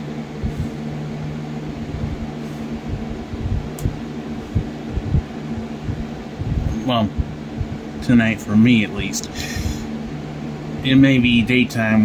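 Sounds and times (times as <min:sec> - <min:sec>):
low mechanical hum: 0:00.0 - 0:12.0
soft low thumps: 0:00.4 - 0:08.0.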